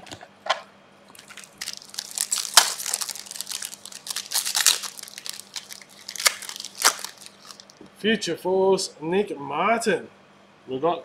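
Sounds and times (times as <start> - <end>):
wrapper crinkling: 1.1 - 7.8.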